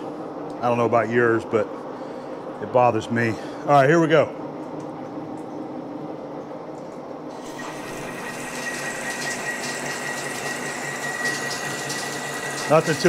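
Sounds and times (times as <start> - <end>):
lathe gears humming: 7.3 - 13.0
hiss of cutting and coolant: 7.4 - 13.0.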